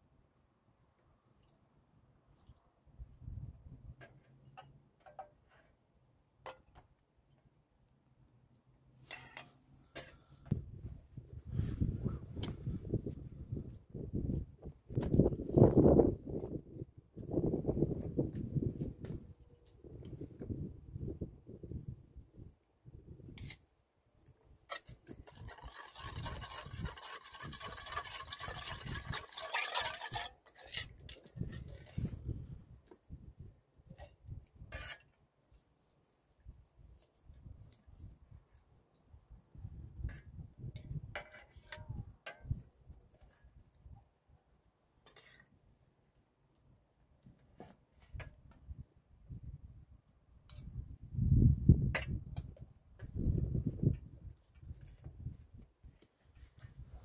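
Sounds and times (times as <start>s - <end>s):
metal spoon scraping a steel bowl: 24.7s - 32.0s, 34.7s - 35.1s
liquid sloshing: 25.3s - 30.6s.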